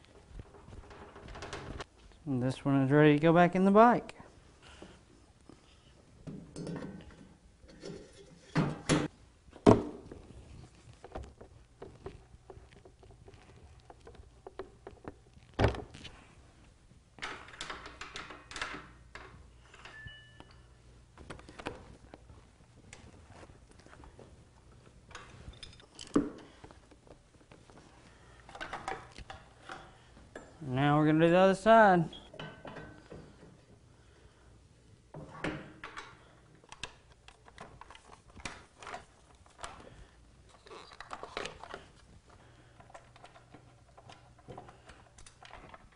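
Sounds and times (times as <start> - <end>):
handling and shuffling: 7.9 - 17.2, 19.3 - 32.3.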